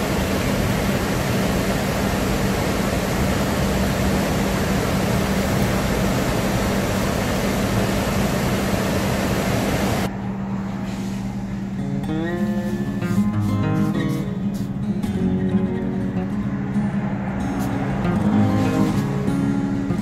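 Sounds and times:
stream rushing over rocks: 0.0 - 10.1.

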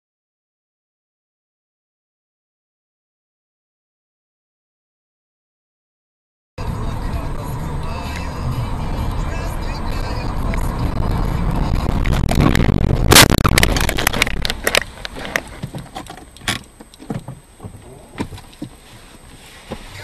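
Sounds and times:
low driving rumble: 6.6 - 20.0
clattering knocks and scraping: 11.9 - 18.8
loud car collision: 12.0 - 14.6.

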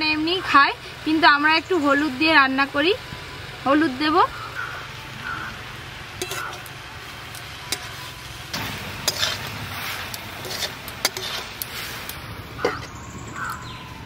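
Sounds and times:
vegetables sizzling in a wok: 0.0 - 14.0
spatula clinking and scraping pan: 6.2 - 6.7, 7.6 - 13.0.

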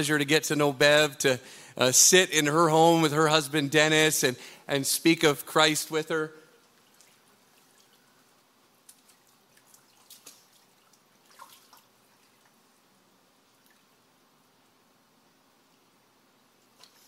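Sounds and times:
faint water drips and splashes: 6.5 - 12.7, 13.4 - 14.1.

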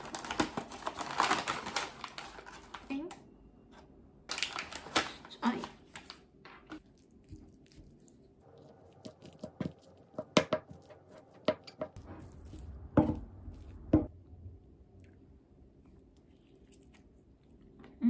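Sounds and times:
rice squishing: 6.8 - 14.1.

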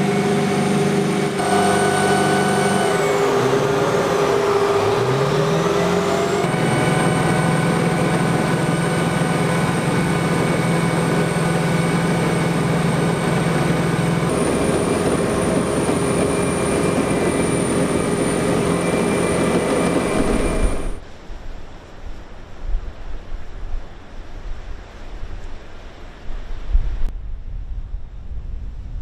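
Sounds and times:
vehicle engine drone with whine: 0.0 - 21.0
wind: 0.0 - 29.0.

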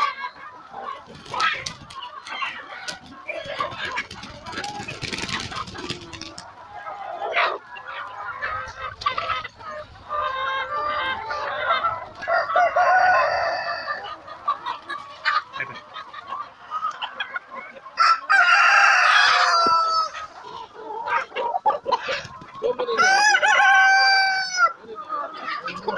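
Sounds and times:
chickens clucking and calling: 0.0 - 25.9
rooster crowing: 12.2 - 14.0, 18.0 - 20.2, 23.0 - 24.7.

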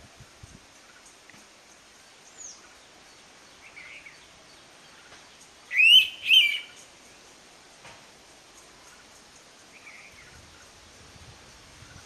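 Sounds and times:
faint thin bird chirps: 4.9 - 6.9
bird two-note whistled call: 5.7 - 6.7.

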